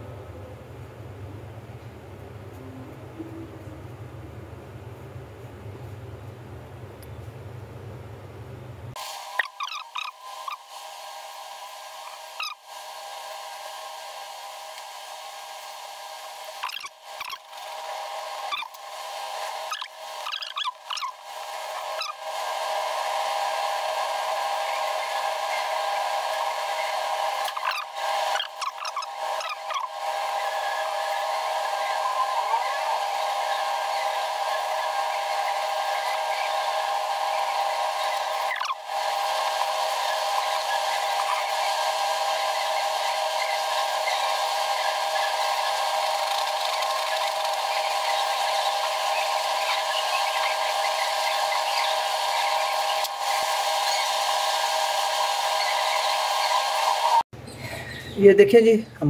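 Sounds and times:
small motor whirring hum: 8.9 - 57.2.

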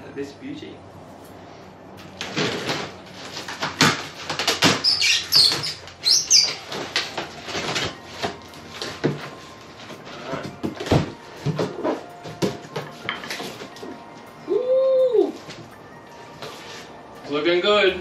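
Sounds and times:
short high squeaks: 4.7 - 6.7.

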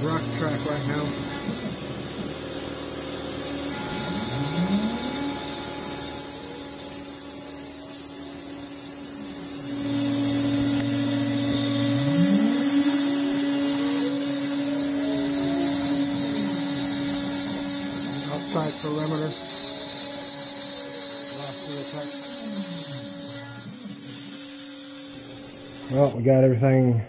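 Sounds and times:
air blast hiss: 0.0 - 26.2
cnc router spindle milling: 0.0 - 26.2.

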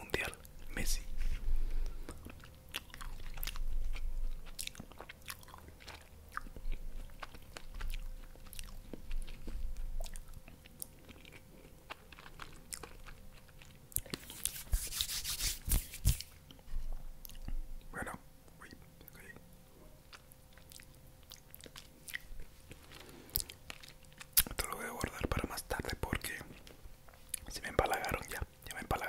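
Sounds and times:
mouth chewing soft cake: 0.1 - 14.8, 16.1 - 29.0
scratchy rustling: 14.2 - 16.3.

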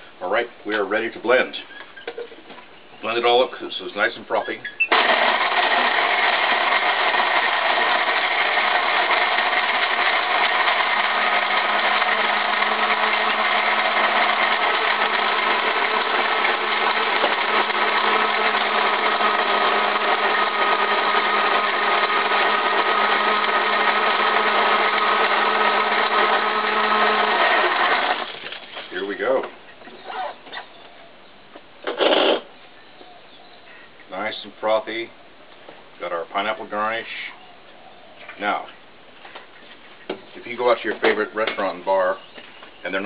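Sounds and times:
blender churning ice: 4.9 - 28.7.

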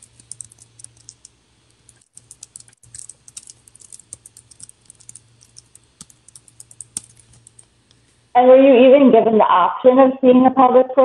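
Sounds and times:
keyboard key clicks: 0.0 - 1.3, 1.9 - 7.7
low steady hum: 0.0 - 11.0.

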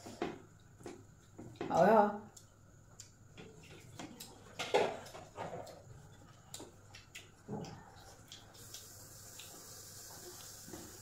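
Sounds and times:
chewing and lip-smacking: 2.3 - 9.7.

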